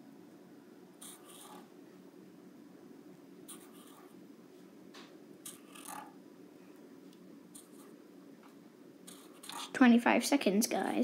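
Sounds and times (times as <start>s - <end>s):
low room hum: 0.0s - 11.0s
marker scratching on paper: 1.0s - 1.7s, 3.5s - 4.1s, 5.5s - 6.1s, 7.6s - 7.9s, 9.1s - 9.7s.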